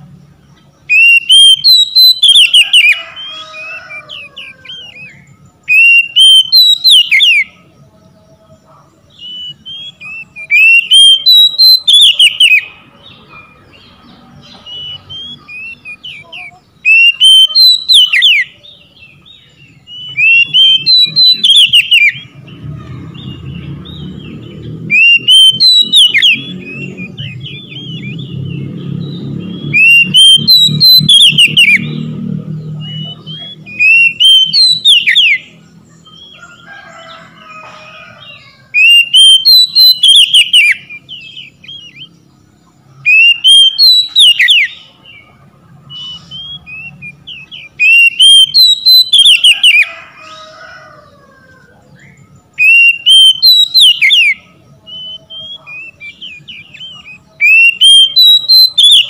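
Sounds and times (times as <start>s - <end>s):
bird singing whistled phrases: 0.8s - 7.5s, 9.1s - 12.8s, 14.5s - 22.4s, 24.9s - 32.0s, 32.7s - 36.4s, 38.8s - 42.1s, 43.0s - 44.9s, 45.9s - 49.9s, 52.6s - 59.0s.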